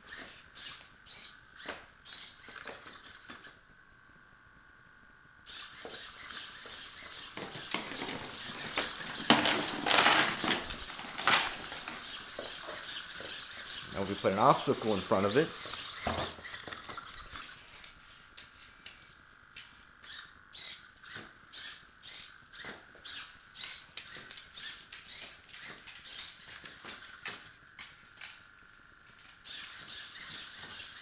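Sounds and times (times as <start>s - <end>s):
servos whining: 0.0s - 3.7s, 5.4s - 27.6s, 29.4s - 31.0s
robot feet tapping on tile: 7.1s - 13.5s.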